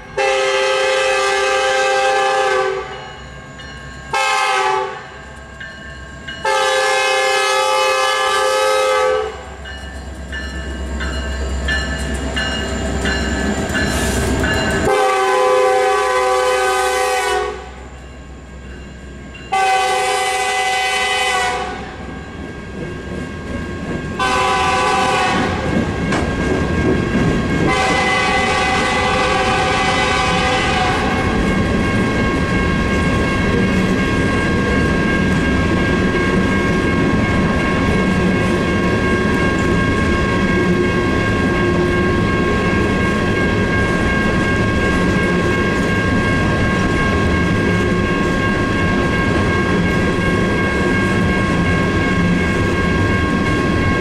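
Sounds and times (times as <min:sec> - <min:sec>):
crossing bell ringing: 0:00.0 - 0:54.0
distant train horn blasts: 0:00.2 - 0:03.0, 0:04.1 - 0:05.0, 0:06.4 - 0:09.5, 0:14.8 - 0:17.8, 0:19.5 - 0:22.0, 0:24.2 - 0:25.7, 0:27.7 - 0:31.4
train wheels clacking on rails: 0:09.6 - 0:17.0, 0:18.6 - 0:54.0.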